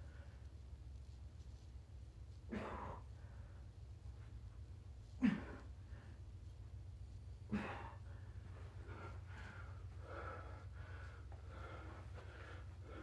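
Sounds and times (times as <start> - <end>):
man breathing hard: 7.4 - 13.0.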